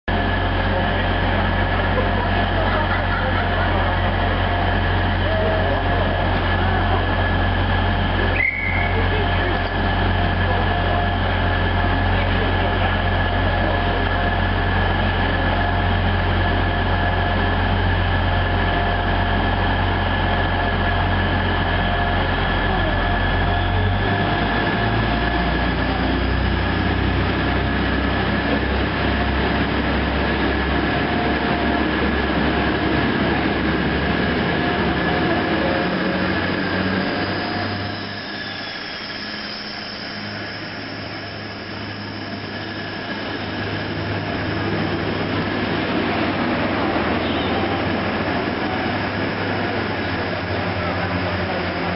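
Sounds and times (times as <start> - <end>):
train diesel engine whine: 0.1 - 51.9.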